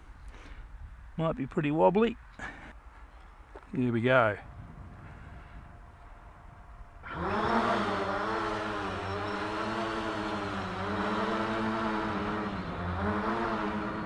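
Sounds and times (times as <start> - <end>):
drone propellers droning: 4.4 - 14.0.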